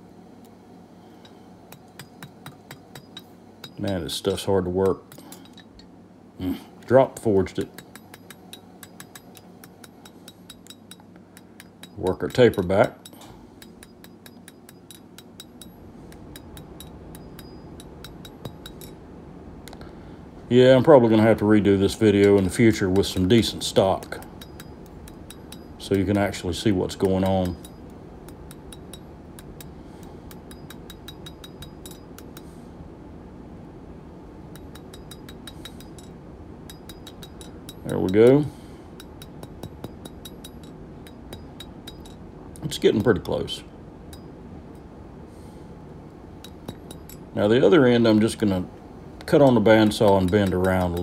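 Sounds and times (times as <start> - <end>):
hammer striking steel on anvil: 1.2 - 4.1, 7.5 - 19.0, 21.3 - 32.5, 34.5 - 42.2, 49.3 - 51.0.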